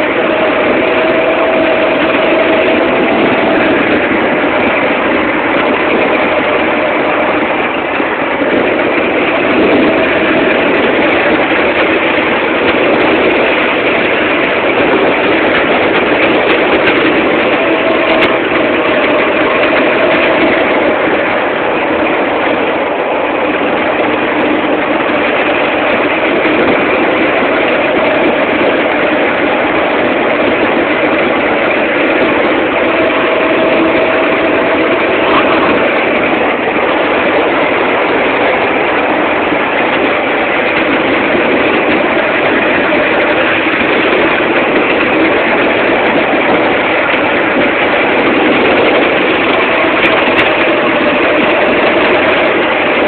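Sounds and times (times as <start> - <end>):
small engine running: 0.0 - 53.0.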